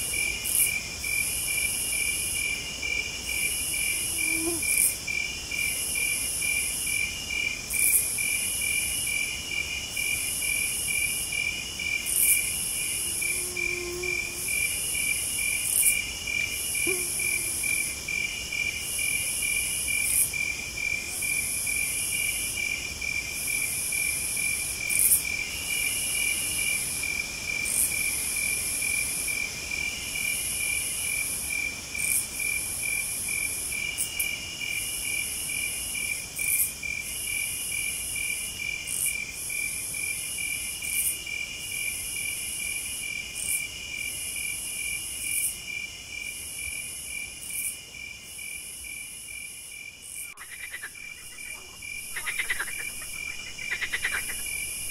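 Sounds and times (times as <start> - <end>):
insects trilling: 0.1 - 54.9
high insect buzz: 3.3 - 9.3, 9.9 - 20.5, 48.4 - 54.9.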